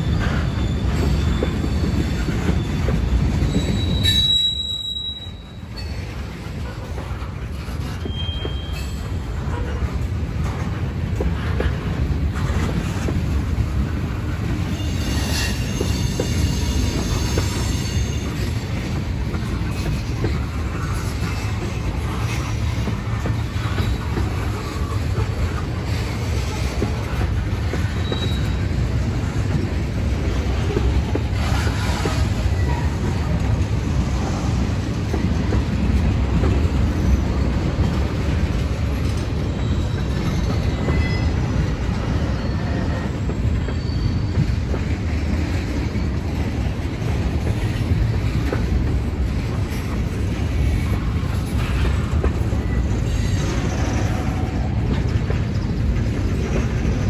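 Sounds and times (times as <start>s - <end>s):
high wheel squeals: 0.0s - 6.2s, 7.8s - 9.7s, 14.6s - 18.6s, 27.8s - 28.8s, 39.4s - 44.6s
train rumbling past: 0.0s - 57.0s.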